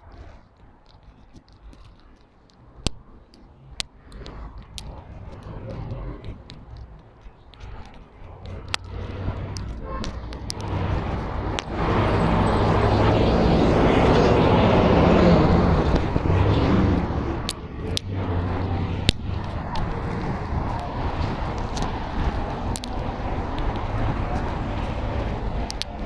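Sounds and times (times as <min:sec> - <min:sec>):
car passing by: 0:07.6 - 0:26.0.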